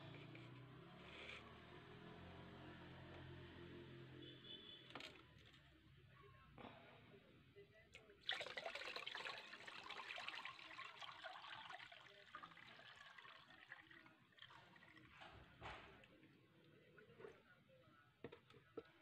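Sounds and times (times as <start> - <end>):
liquid pouring and splashing: 8.0 - 16.2.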